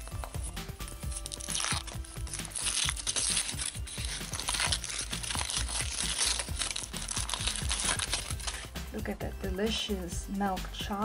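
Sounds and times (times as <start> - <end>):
foil wrapper crinkling: 0.0 - 8.8.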